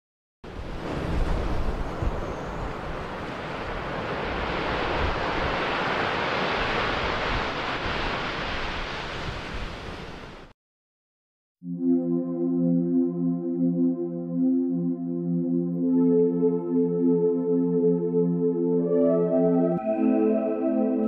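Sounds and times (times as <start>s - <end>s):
sea surf rushing: 0.5s - 10.5s
wind: 0.5s - 10.5s.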